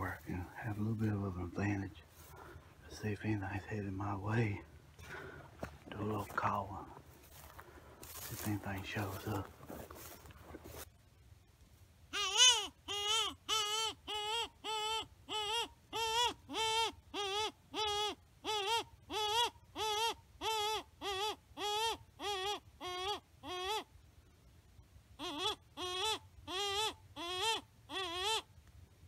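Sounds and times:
predator call distress cry: 12.1 - 23.9, 25.2 - 28.5.

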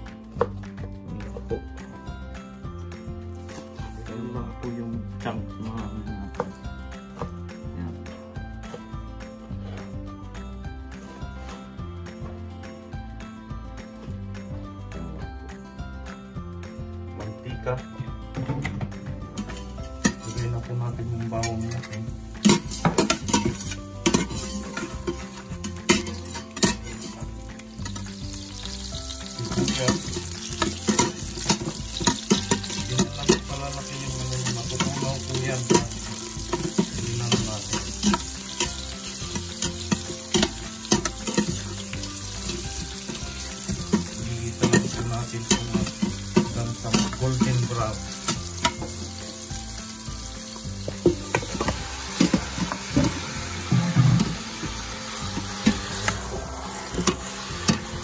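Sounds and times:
onions sizzling in hot oil: 19.3 - 58.0
metal spoon scraping pot: 21.4 - 27.2
meat clattering into pot: 21.4 - 49.2.

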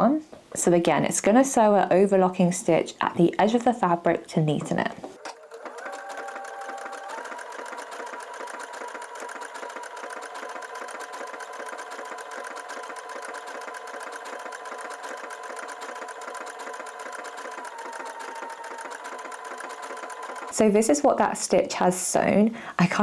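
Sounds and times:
sewing machine motor whine: 5.2 - 20.8
sewing machine stitching: 5.2 - 20.9.

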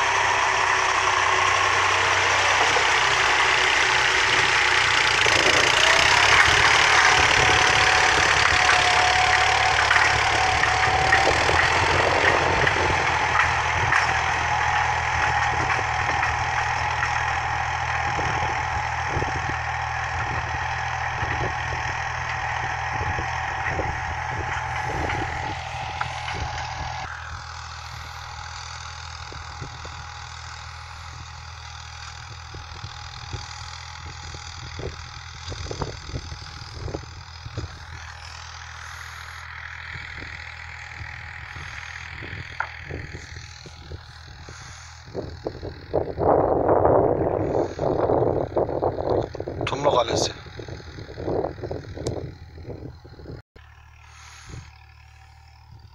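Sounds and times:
engine humming steadily: 0.0 - 55.9
knocks and rattles: 1.3 - 27.1.

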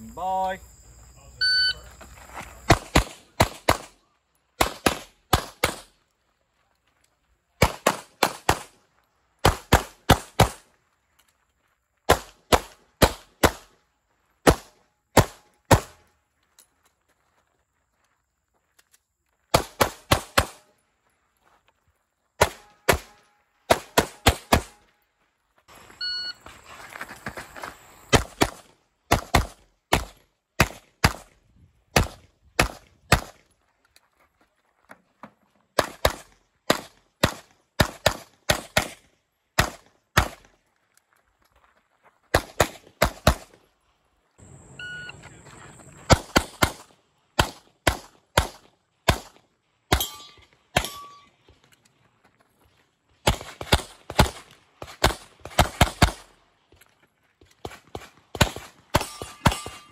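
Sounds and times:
pistol gunshots: 2.7 - 6.0, 7.6 - 8.8, 9.4 - 10.7, 12.1 - 13.8, 14.4 - 16.0, 19.5 - 20.7, 22.4 - 24.8, 28.1 - 33.5, 35.8 - 40.5, 42.3 - 43.6, 46.0 - 51.3, 53.2 - 56.4, 57.6 - 59.9.

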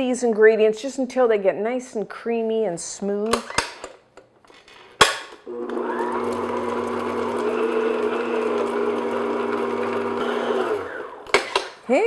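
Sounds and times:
stand mixer motor humming: 5.5 - 11.3.

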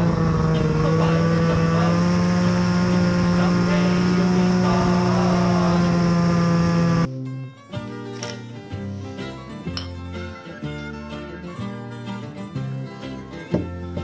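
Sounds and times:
snowmobile engine running: 0.0 - 7.1.

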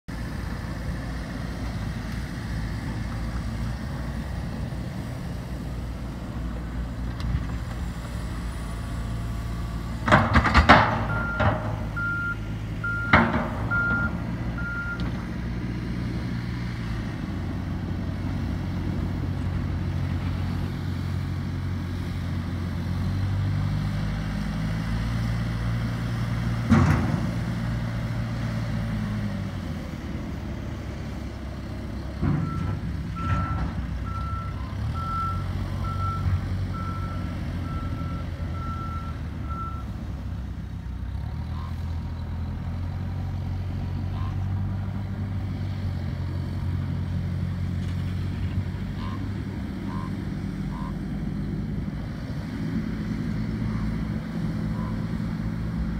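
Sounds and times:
diesel engine running under load: 0.1 - 55.9
reversing alarm beeping: 11.0 - 15.0, 32.4 - 39.9, 49.9 - 51.0.

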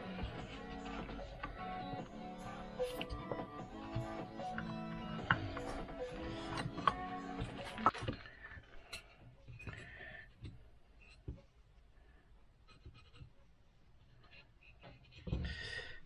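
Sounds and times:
background music: 0.0 - 10.6
pencil scratching on wood: 12.6 - 13.4.

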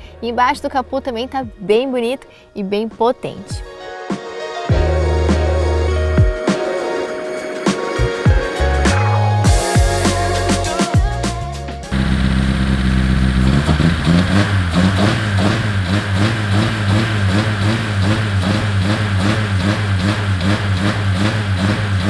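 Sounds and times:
car engine lumpy idle: 11.9 - 22.0.

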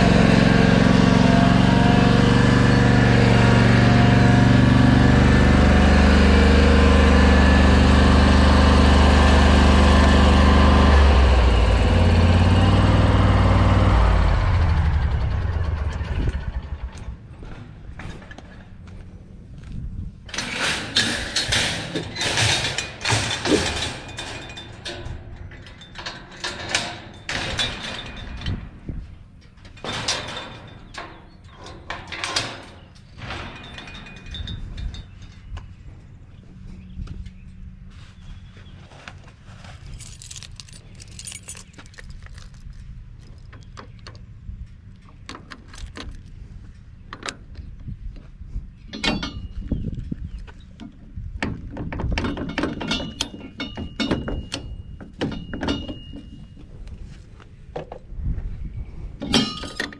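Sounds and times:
metal ramp rattling and clanking: 0.0 - 18.8, 20.3 - 36.1, 48.9 - 50.1, 50.8 - 56.8, 59.2 - 59.9
low engine hum: 0.0 - 20.4, 32.8 - 59.6
keys jangling against metal lock: 39.9 - 43.5, 45.5 - 46.3.

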